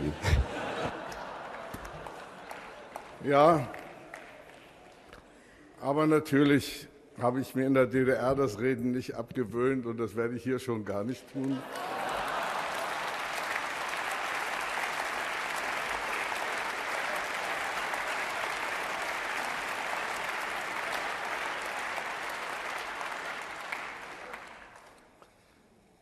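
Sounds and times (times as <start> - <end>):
audience applauding: 0.0 - 5.1, 11.4 - 25.2.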